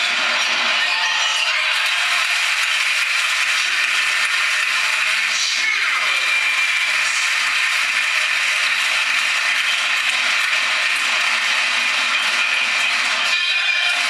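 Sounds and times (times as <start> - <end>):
crowd of spectators din: 0.0 - 14.0.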